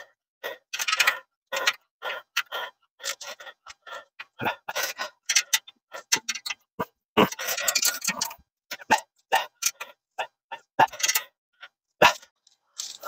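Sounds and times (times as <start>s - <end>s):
metal bed frame parts clinking: 0.7s - 1.8s, 4.8s - 8.9s, 10.8s - 11.3s.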